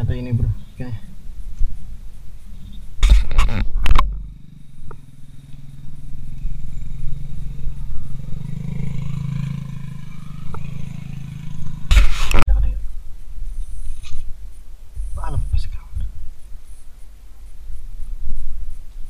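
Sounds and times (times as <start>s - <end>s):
small engine humming: 3.6s - 11.9s.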